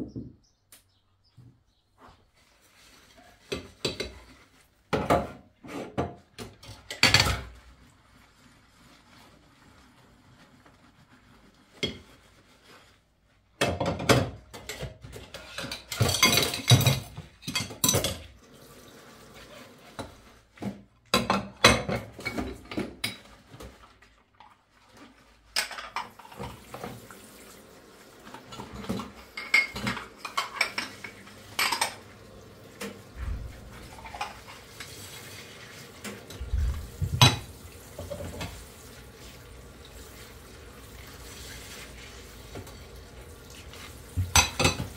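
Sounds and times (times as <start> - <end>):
water running: 14.6 - 20.7, 21.4 - 44.9
ceramic plates clinking: 14.7 - 18.2, 28.5 - 32.0.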